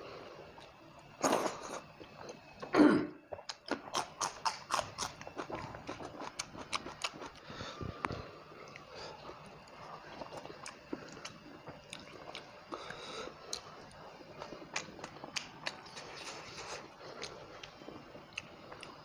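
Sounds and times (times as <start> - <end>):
wet chewing and lip-smacking: 3.3 - 7.4, 9.6 - 19.0.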